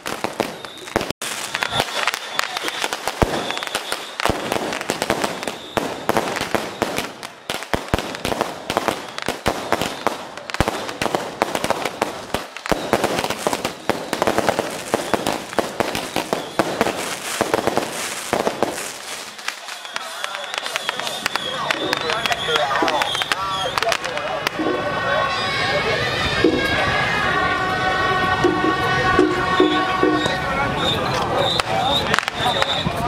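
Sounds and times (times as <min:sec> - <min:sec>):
loud firecracker bangs: 0:00.0 - 0:25.3
firecrackers crackling: 0:00.0 - 0:33.0.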